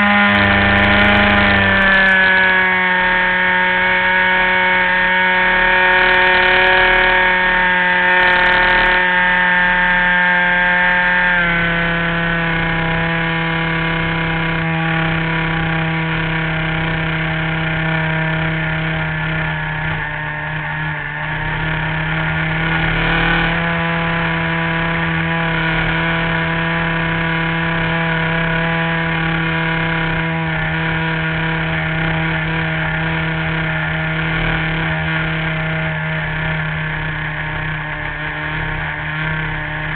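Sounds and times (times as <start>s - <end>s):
model airplane engine and propeller: 0.0s - 39.9s.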